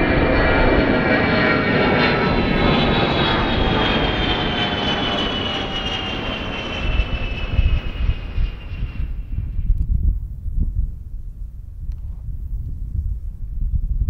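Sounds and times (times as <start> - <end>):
jet engines roaring overhead: 0.0 - 10.0
wind buffeting microphone: 0.0 - 14.0.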